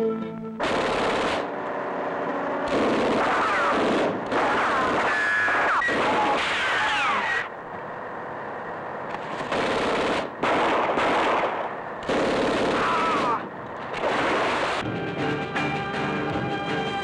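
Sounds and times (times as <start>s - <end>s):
music: 0.0s - 0.6s, 14.8s - 17.0s
automatic gunfire: 0.6s - 1.6s, 2.6s - 6.8s, 9.3s - 14.8s.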